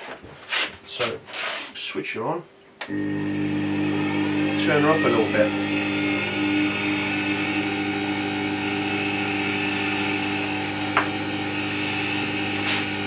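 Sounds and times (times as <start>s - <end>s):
sharpener motor humming: 2.9s - 13.0s.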